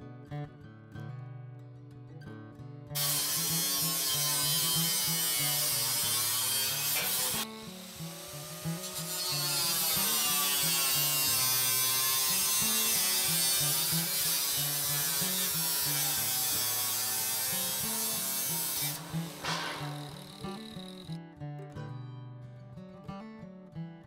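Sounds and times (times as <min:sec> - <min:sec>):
angle grinder cutting metal: 0:03.0 - 0:21.2.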